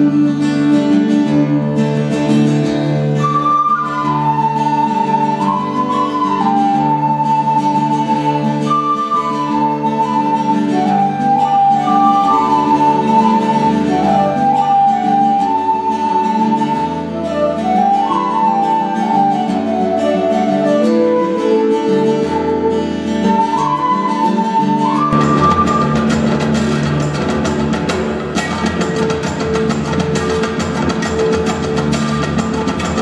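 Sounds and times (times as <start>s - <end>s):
acoustic guitar accompaniment: 0.0s - 33.0s
flute slow melody: 2.9s - 27.1s.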